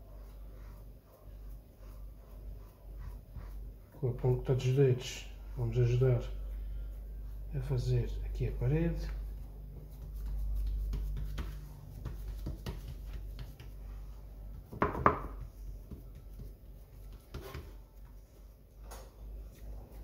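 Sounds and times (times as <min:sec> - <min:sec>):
fingers pressing dough: 0:09.0 - 0:18.2
dish knocking on stone counter: 0:14.7 - 0:15.4.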